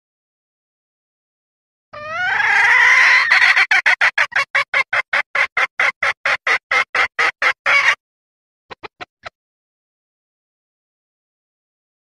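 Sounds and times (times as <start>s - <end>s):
hen clucking: 2.0s - 8.0s, 8.7s - 9.3s
hen squawk: 2.0s - 8.0s, 8.7s - 9.3s.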